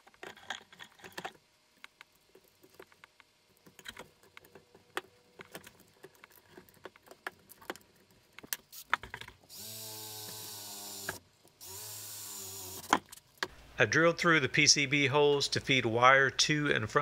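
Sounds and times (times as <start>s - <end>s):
cordless drill drilling: 9.5s - 12.9s.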